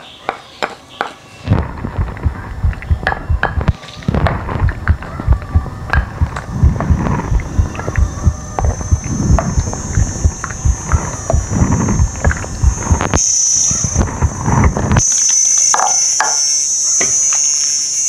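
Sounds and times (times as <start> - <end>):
low bubbling: 1.5 - 15.7.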